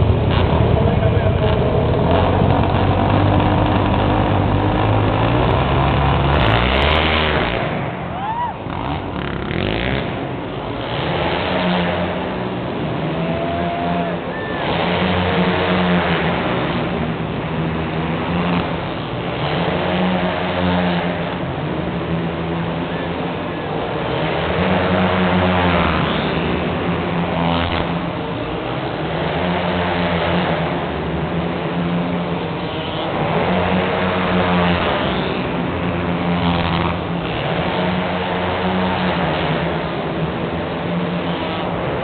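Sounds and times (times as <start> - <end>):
steady low drone: 0.0 - 9.2
quad engines revving: 0.0 - 42.0.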